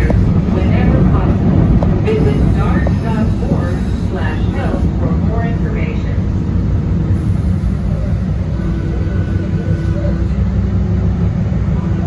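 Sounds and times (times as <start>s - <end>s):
train rumbling: 0.0s - 12.0s.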